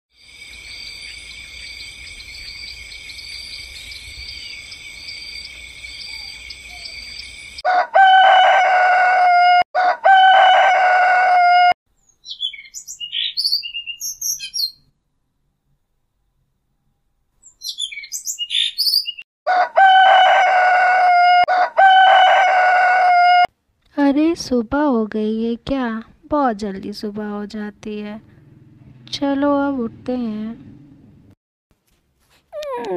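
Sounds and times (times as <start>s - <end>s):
rooster crowing: 7.6s - 11.8s, 19.5s - 23.5s
short bird chirps: 12.0s - 14.9s, 17.4s - 19.2s.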